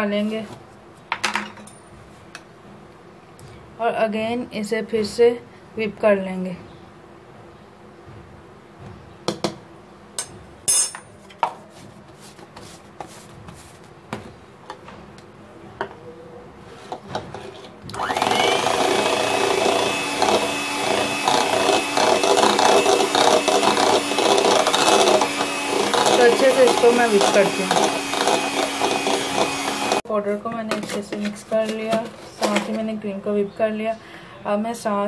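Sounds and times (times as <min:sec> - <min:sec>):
electric hand mixer whipping: 0:17.9 - 0:30.0.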